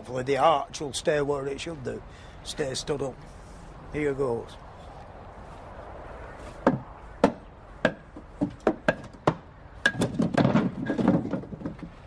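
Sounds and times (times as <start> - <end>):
hammer knocking wooden block: 6.6 - 10.6.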